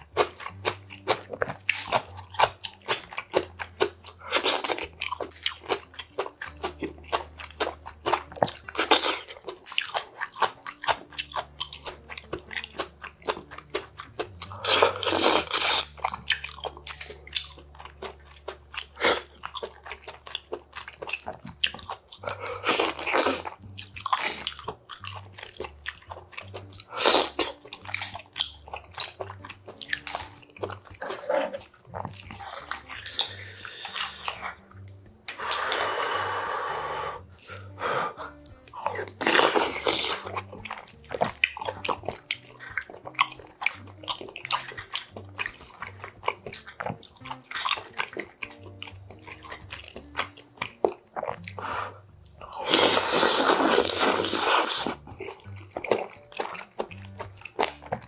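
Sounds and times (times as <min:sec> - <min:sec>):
slurping: 0:00.0 - 0:58.0
wet chewing: 0:00.0 - 0:58.0
mouth clicks: 0:26.5 - 0:58.0.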